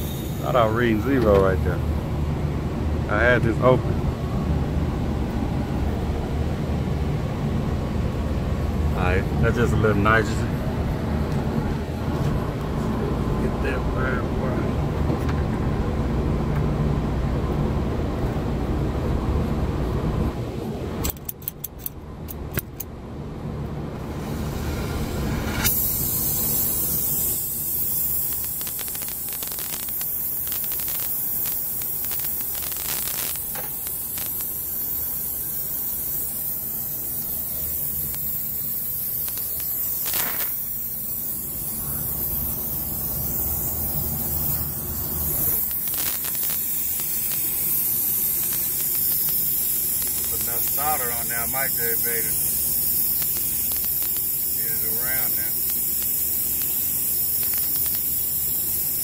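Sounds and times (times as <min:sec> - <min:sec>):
sharp clicks: 0:21.0 - 0:22.9, 0:39.2 - 0:40.7, 0:45.5 - 0:50.6
torch flame hissing: 0:24.0 - 0:59.0.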